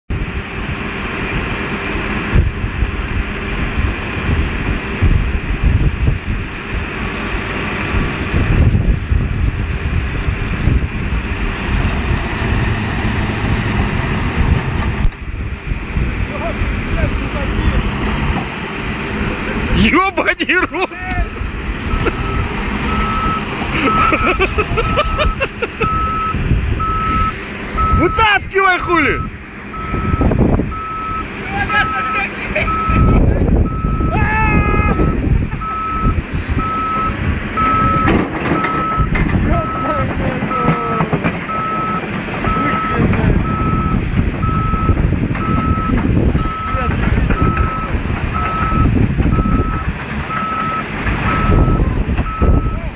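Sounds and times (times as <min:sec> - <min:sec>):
diesel engine running under load: 0:00.1 - 0:52.9
backup alarm beeping: 0:21.9 - 0:34.1, 0:34.9 - 0:40.8, 0:41.5 - 0:46.8, 0:47.4 - 0:52.8.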